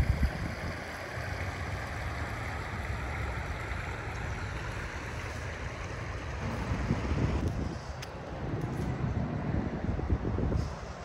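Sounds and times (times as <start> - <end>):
river water babbling over stones: 0.0 - 6.7
wind buffeting microphone: 0.0 - 11.0.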